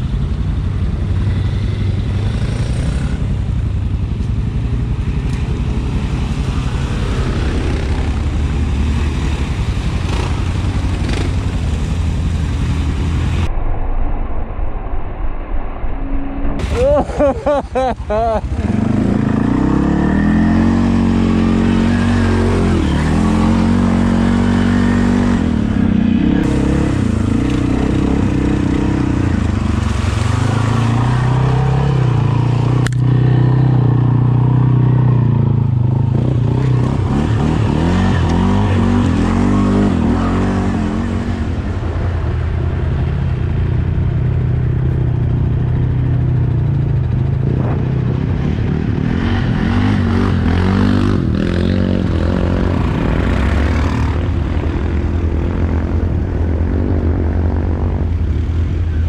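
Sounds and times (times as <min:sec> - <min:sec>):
atv engine revving: 0:01.2 - 0:13.4, 0:16.6 - 0:58.8.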